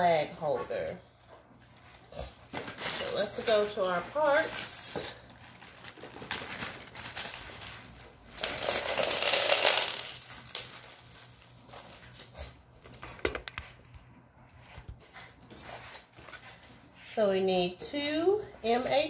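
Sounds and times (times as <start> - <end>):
metal screws rattling in plastic bag: 2.6 - 12.2.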